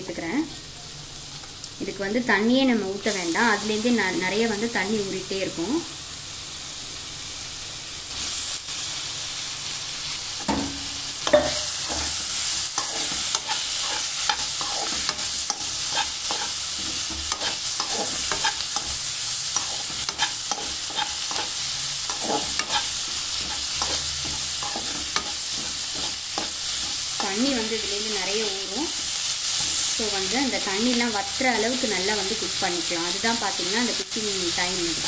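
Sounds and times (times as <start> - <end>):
food sizzling in oil: 0.0 - 35.0
spoon stirring and scraping pan: 10.4 - 27.9, 28.9 - 30.0.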